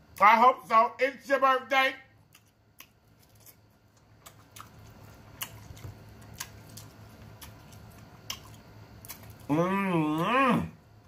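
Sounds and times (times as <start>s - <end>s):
wet chewing mouth clicks: 2.3s - 9.5s.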